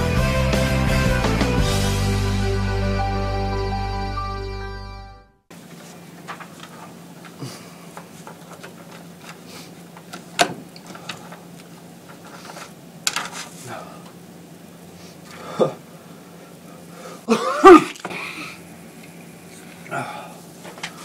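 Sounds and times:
steady low hum: 5.5s - 21.0s
paper shuffling on desk: 5.6s - 10.3s, 10.9s - 13.7s.

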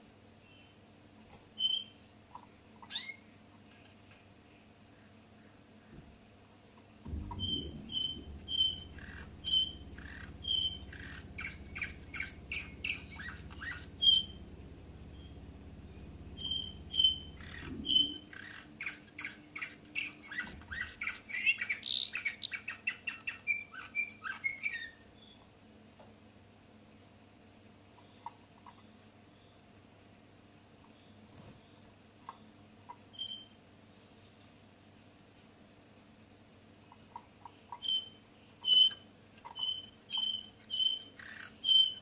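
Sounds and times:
canary singing: 1.6s - 4.2s, 7.1s - 25.5s, 31.9s - 33.9s, 36.9s - 42.0s.

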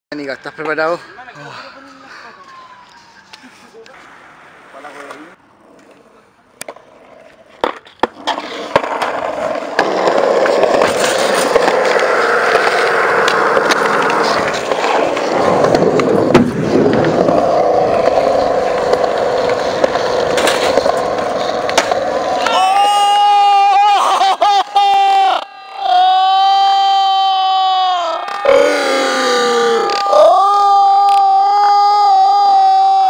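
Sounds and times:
skateboard wheels rolling on concrete: 1.8s - 33.0s
skateboard clacks: 5.7s - 23.2s, 29.8s - 30.3s.

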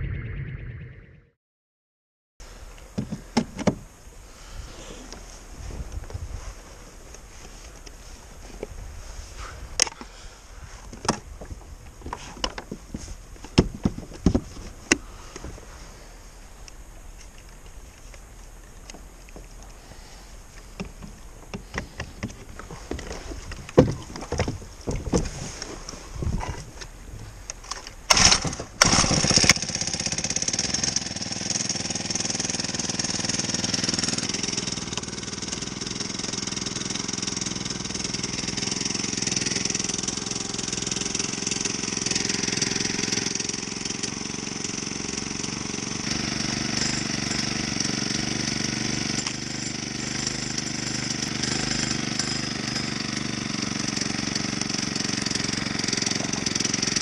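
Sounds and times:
small motor running: 28.1s - 57.0s.

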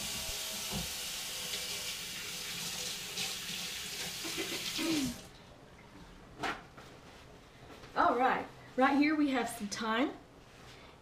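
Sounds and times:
tap running into sink: 0.0s - 1.8s.

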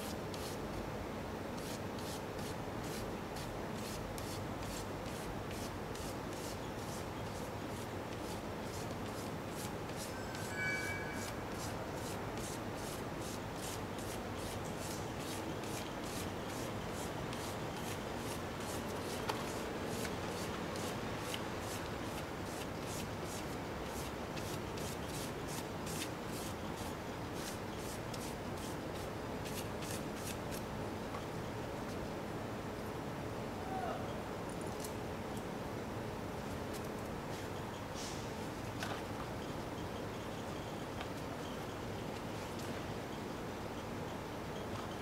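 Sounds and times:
paper rubbing on stone: 29.4s - 30.6s.

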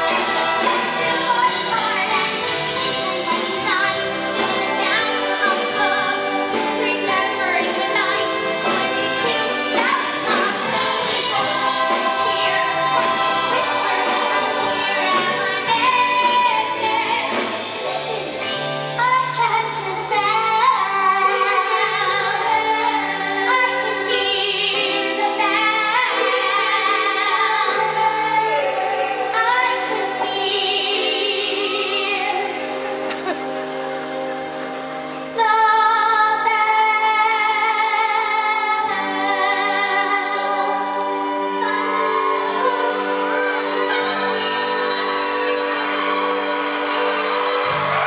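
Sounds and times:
woman singing: 0.0s - 17.7s, 19.0s - 33.4s, 35.4s - 48.0s
band playing bass notes: 0.0s - 30.5s, 40.8s - 48.0s
ensemble singing: 0.0s - 48.0s.

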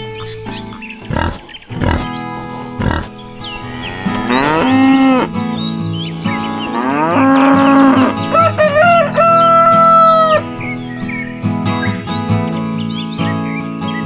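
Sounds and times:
cow mooing: 1.0s - 5.4s, 6.2s - 8.4s
rooster crowing: 7.6s - 10.4s.

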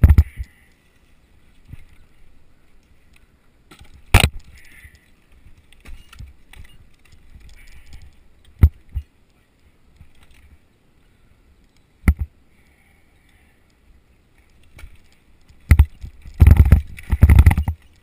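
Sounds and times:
metal climbing hardware jingling: 4.4s - 8.2s.

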